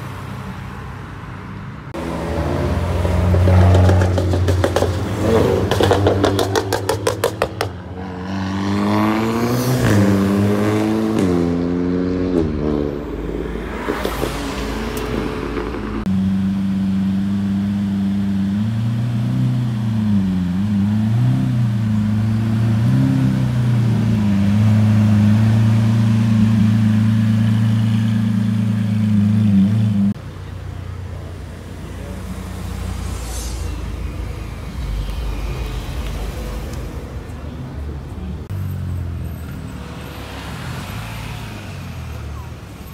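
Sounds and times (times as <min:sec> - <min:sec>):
quieter car noise: 0:30.1 - 0:42.9.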